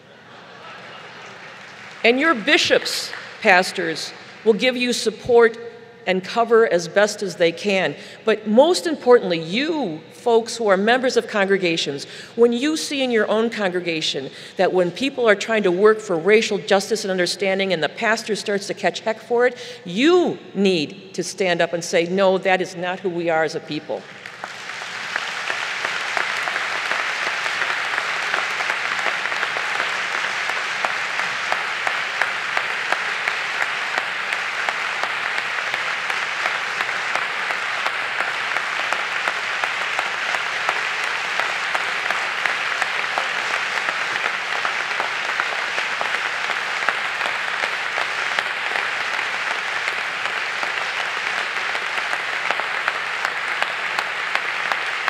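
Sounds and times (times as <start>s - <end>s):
large audience applauding: 0.0s - 4.5s, 24.0s - 55.0s.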